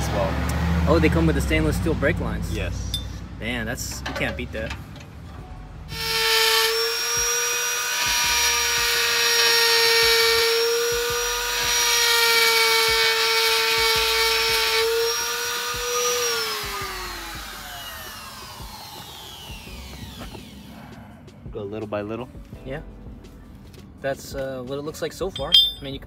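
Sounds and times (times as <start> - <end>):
grinder grinding metal: 5.9 - 20.7
rotary grinder whining: 5.9 - 20.7.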